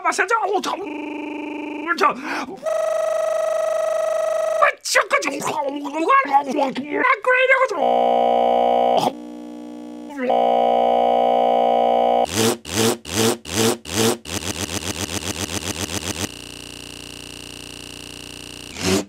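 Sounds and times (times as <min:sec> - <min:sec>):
glitch stutter electronic buzz: 0:07.8 - 0:19.0.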